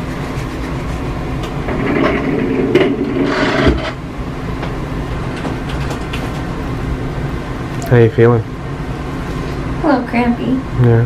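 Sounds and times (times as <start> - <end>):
rustling and scraping: 0.0 - 4.0
ventilation hum: 0.0 - 11.0.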